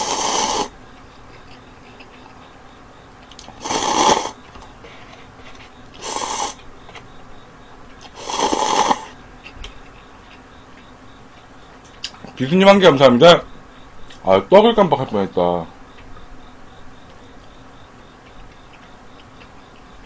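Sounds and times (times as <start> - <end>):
person slurping noodles: 0.0 - 0.7, 3.6 - 4.4, 6.0 - 6.6, 8.1 - 9.2.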